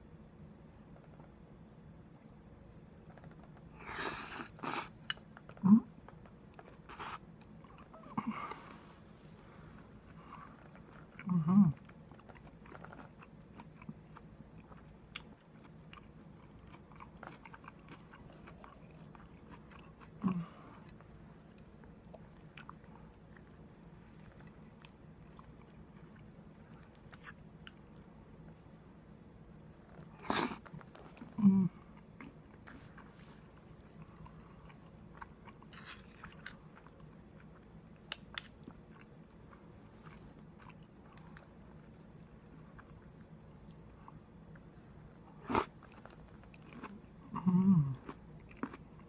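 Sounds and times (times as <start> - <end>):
person chewing food: 9.5 - 28.6, 29.4 - 49.0.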